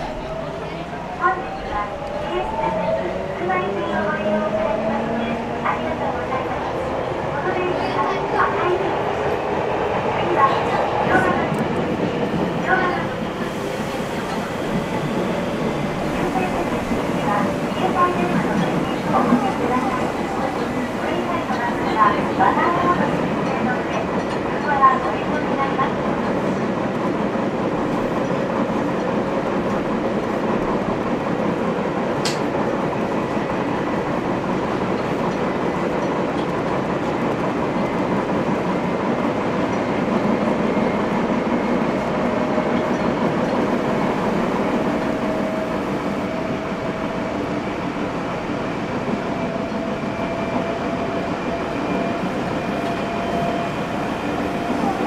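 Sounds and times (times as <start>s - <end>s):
train rolling rumble: 0.0s - 55.0s.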